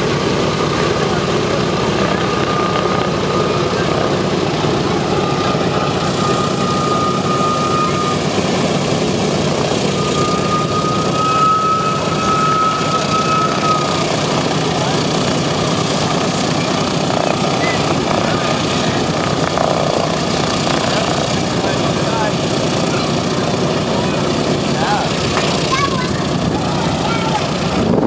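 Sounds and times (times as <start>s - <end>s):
radial aircraft engines droning: 0.0s - 28.0s
thin high whine: 4.9s - 8.8s, 9.8s - 15.0s.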